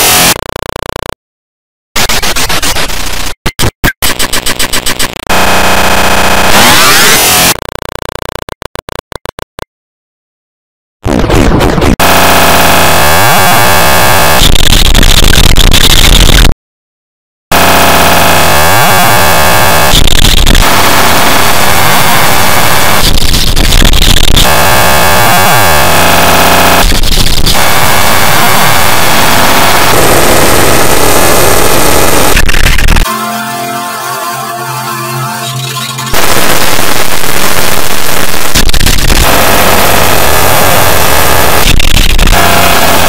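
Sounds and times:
harsh distorted digital noise: 0.0s - 1.2s, 2.0s - 9.4s, 11.0s - 16.6s, 17.5s - 43.0s.

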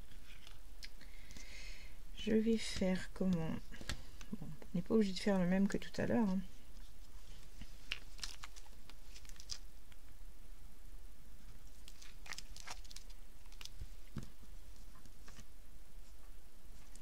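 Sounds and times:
low steady hum: 0.0s - 17.0s
paper rustling: 6.8s - 9.6s, 11.5s - 17.0s.

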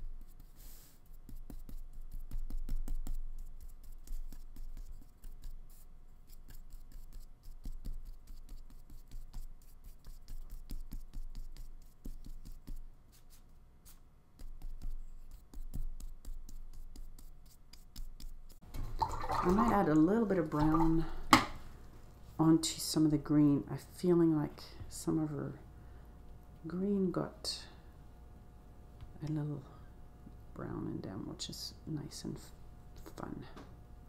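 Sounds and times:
paintbrush dabbing on paper: 0.0s - 18.6s.

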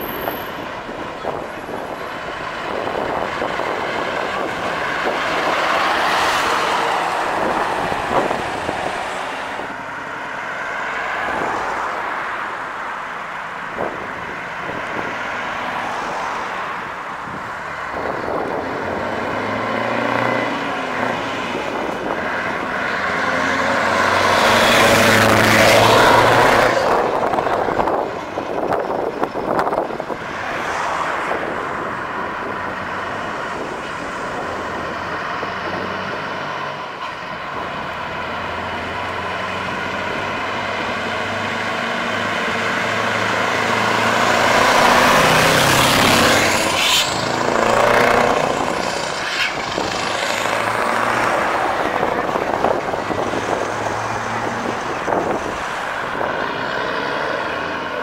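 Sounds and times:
heavy trucks driving past: 13.6s - 58.0s.

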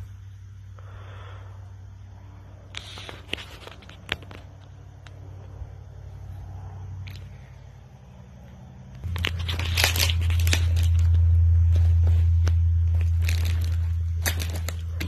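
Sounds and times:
loud low rumble: 7.6s - 15.0s.

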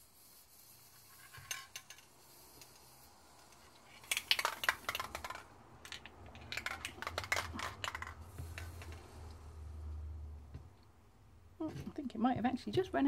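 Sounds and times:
spray can mixing ball rattling: 0.0s - 9.3s.

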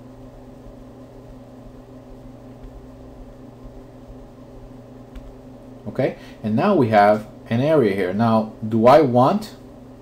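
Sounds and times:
low electrical hum: 0.0s - 10.0s.

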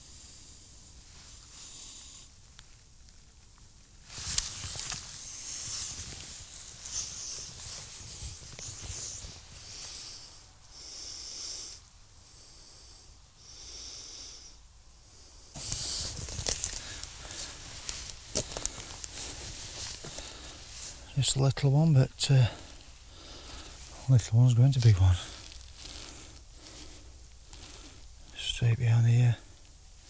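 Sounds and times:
clothing and grass rustling: 4.0s - 10.5s, 15.4s - 30.0s.

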